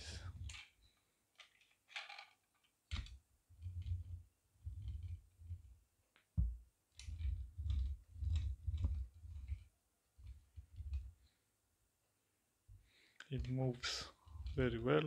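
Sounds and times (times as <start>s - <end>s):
toy car wheels rolling: 1.4s - 4.1s, 7.0s - 11.1s, 13.4s - 15.0s.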